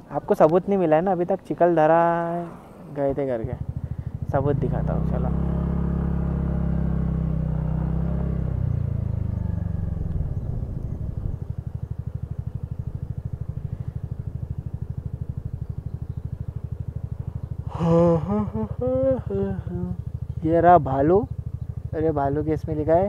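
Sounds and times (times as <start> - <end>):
scooter engine running and idling: 3.1 - 23.0
man's voice: 17.8 - 20.0.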